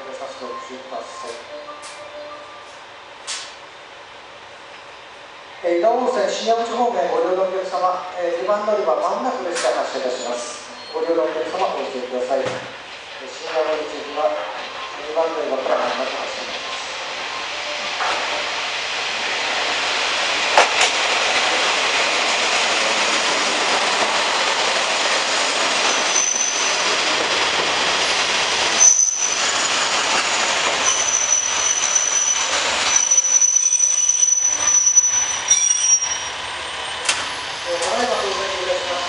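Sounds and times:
high-pitched brake squeal: 0:00.4 - 0:02.8, 0:10.2 - 0:11.5, 0:25.8 - 0:26.9, 0:28.8 - 0:29.9, 0:30.8 - 0:37.8.

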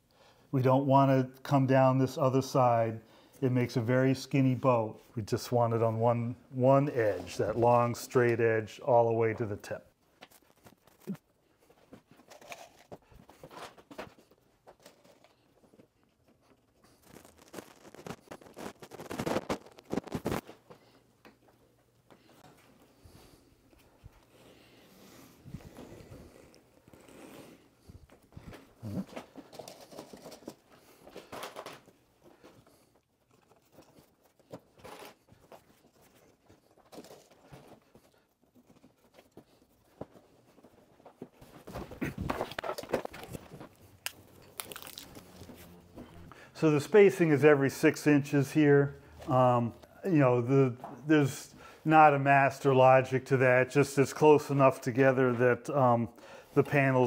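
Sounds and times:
clicks and rustles of wire: 0:10.0 - 0:22.9, 0:27.9 - 0:46.2.

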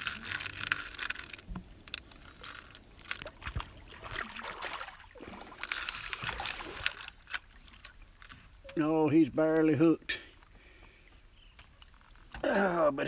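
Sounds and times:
fish splashing in water: 0:03.2 - 0:06.9.

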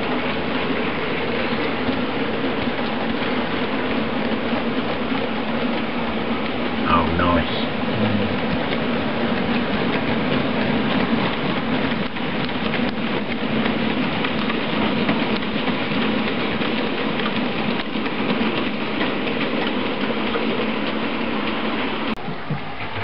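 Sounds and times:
model train wheels rumbling on rail: 0:00.0 - 0:23.0.

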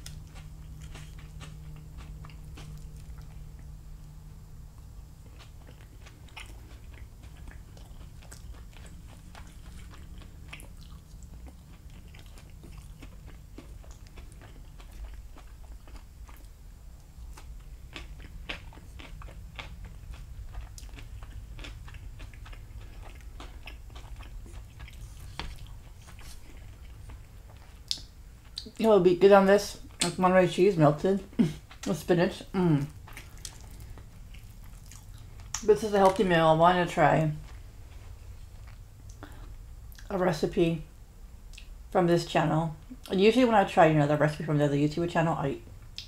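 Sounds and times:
person chewing: 0:00.0 - 0:28.8, 0:32.6 - 0:36.3, 0:37.4 - 0:40.1
steady low hum: 0:00.0 - 0:46.0.

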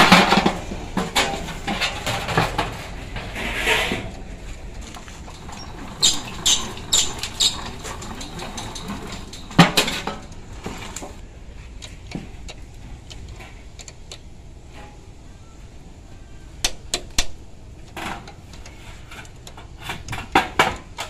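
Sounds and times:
metal clang: 0:00.0 - 0:04.1, 0:05.2 - 0:11.2
sheet metal clinking and rattling: 0:00.0 - 0:11.2.

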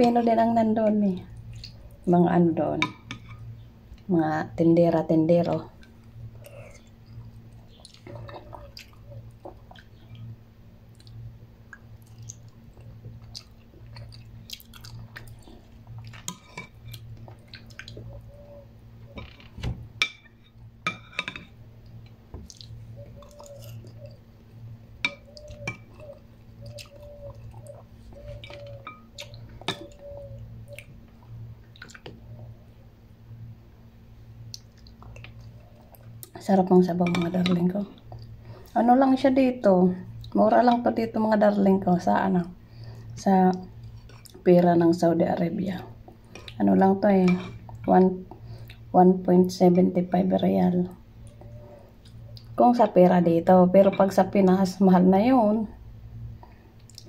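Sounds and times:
steady low hum: 0:00.0 - 0:57.0
quiet chewing: 0:01.3 - 0:02.1, 0:05.8 - 0:10.3, 0:10.9 - 0:18.6, 0:21.8 - 0:24.3, 0:25.1 - 0:32.4, 0:34.4 - 0:36.4, 0:42.8 - 0:44.5, 0:46.0 - 0:46.6, 0:51.2 - 0:52.6, 0:56.4 - 0:57.0.

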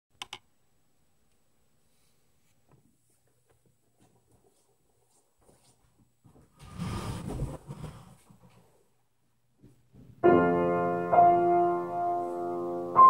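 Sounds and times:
sharp clicks: 0:00.2 - 0:00.5
light footsteps: 0:02.4 - 0:08.9.

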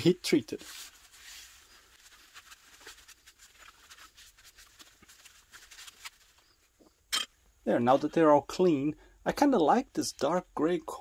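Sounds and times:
faint rustling: 0:00.5 - 0:07.0.

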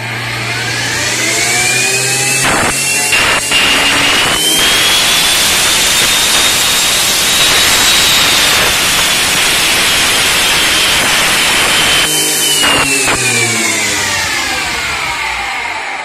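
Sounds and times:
table saw whining: 0:00.0 - 0:16.0.

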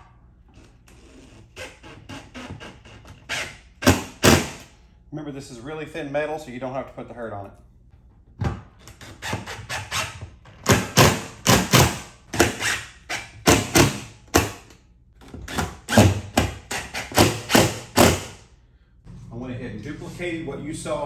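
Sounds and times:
impact driver hammering screws: 0:15.5 - 0:18.4.

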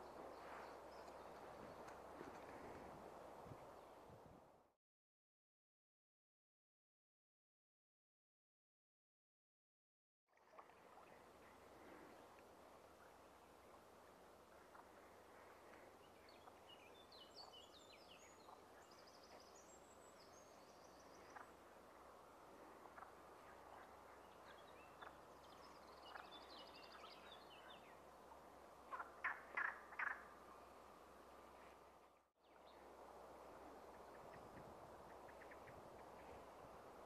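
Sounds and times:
flowing river water: 0:10.3 - 0:17.1
small birds singing: 0:14.6 - 0:21.8, 0:22.8 - 0:28.1.

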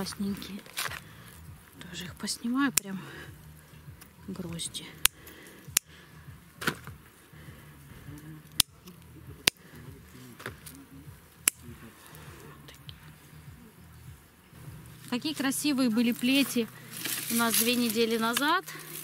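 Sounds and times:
scissors snipping stems: 0:01.8 - 0:03.0, 0:04.0 - 0:06.0, 0:08.4 - 0:09.7, 0:10.3 - 0:11.8, 0:16.0 - 0:19.0.

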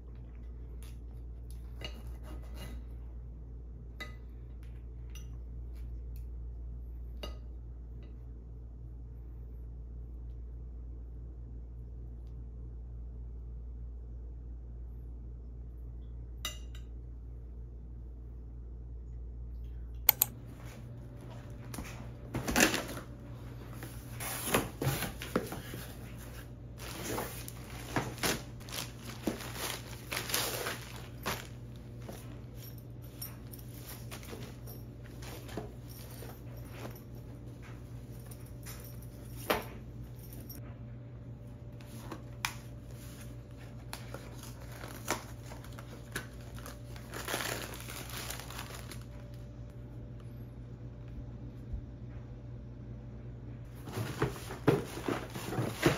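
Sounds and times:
packaging crinkling and rustling: 0:23.8 - 0:32.7, 0:41.8 - 0:49.4, 0:53.7 - 0:55.9.

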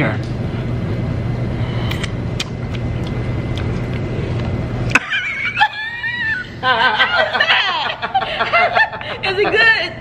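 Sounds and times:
restaurant room hum: 0:00.0 - 0:10.0
high-pitched wavering laughter: 0:05.0 - 0:09.8.

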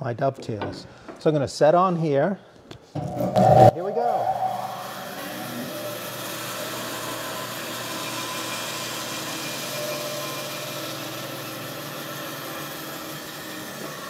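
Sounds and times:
bandsaw cutting wood: 0:04.6 - 0:14.0.

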